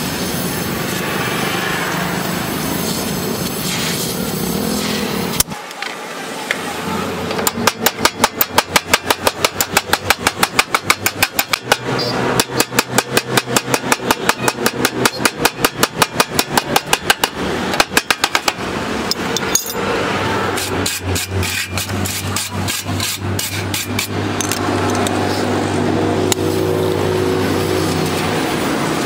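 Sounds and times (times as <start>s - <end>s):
gas torch hissing: 0.0s - 7.3s
hammer beating sheet steel: 7.3s - 26.7s.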